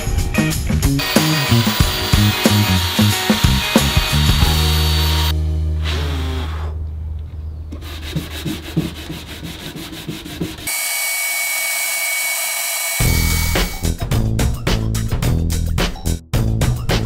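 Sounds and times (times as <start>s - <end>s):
belt sander running: 1.0s - 5.3s, 10.7s - 13.8s
router whining carving wood: 1.0s - 5.3s, 10.7s - 13.8s
hand sanding strokes: 7.7s - 11.7s.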